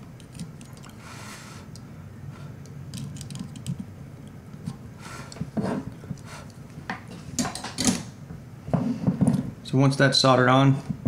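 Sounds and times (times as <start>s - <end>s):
hands and tools clicking: 2.6s - 3.9s.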